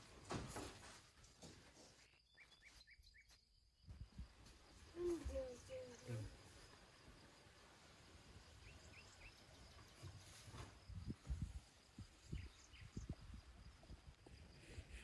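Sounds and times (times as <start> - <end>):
bird chirps: 2.0 - 3.6, 8.6 - 10.4.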